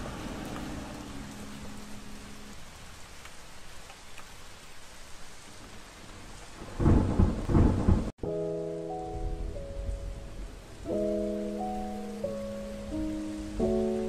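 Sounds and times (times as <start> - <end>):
steady rain hiss: 0.0 - 14.0
thunder rumble: 5.5 - 14.0
music of sustained chords: 8.2 - 14.0.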